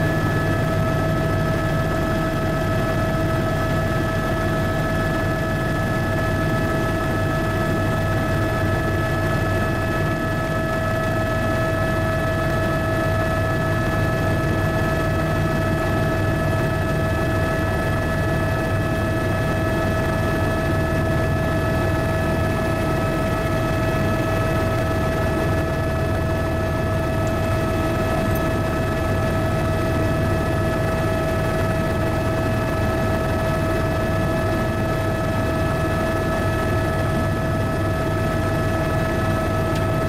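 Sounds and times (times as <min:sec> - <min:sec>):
helicopter engine and rotor drone: 0:00.0 - 0:40.0.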